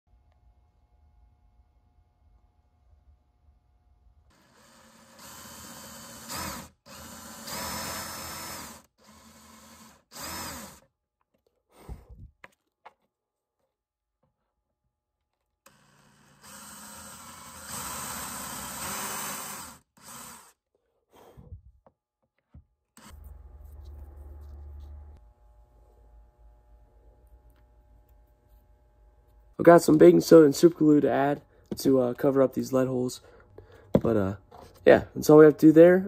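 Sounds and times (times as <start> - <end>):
cordless drill boring wood: 4.3 - 10.8, 15.6 - 20.6.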